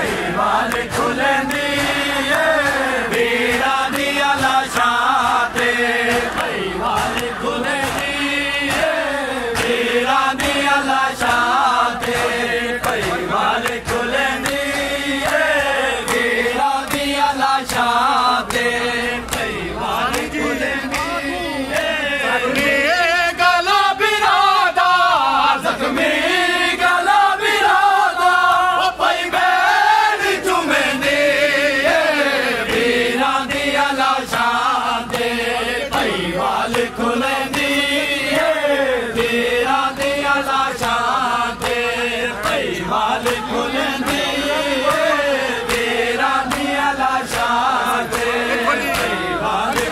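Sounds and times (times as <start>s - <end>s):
men chanting together: 0.0s - 49.9s
hands slapping chests: 39.2s - 49.9s.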